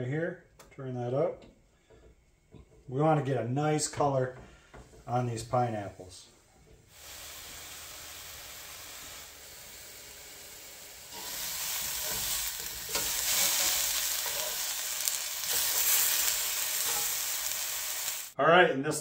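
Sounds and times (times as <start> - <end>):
fruit sizzling in a skillet: 6.9 - 18.4.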